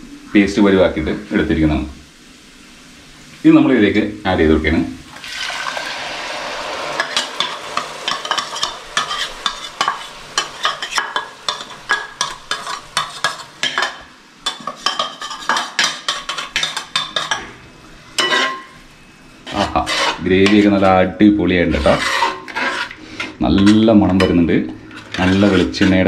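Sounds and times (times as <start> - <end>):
paste sizzling in hot pot: 0.6 - 26.0
steel ladle scraping and clinking: 6.9 - 17.5, 18.2 - 18.7, 19.5 - 20.8, 21.7 - 26.0.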